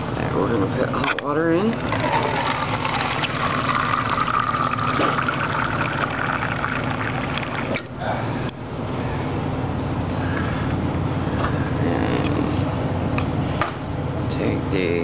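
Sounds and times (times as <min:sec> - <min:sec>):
hot water pouring into cup: 0:01.7 - 0:07.9.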